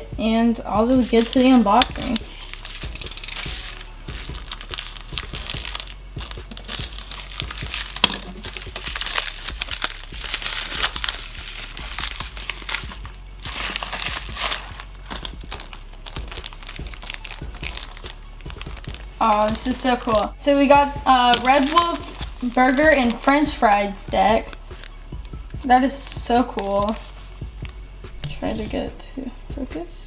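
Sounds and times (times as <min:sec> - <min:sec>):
plastic packaging crinkling: 0:01.0 - 0:25.7, 0:26.5 - 0:28.3
sharp plastic crack: 0:01.2 - 0:19.6.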